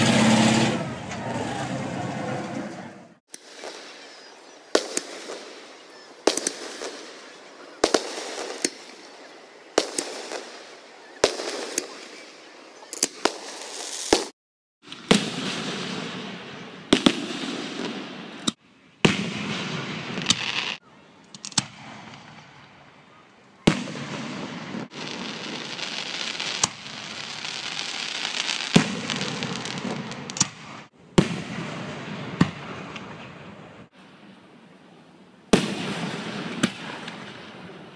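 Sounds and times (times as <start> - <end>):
firework shells bursting: 3.3 - 9.2.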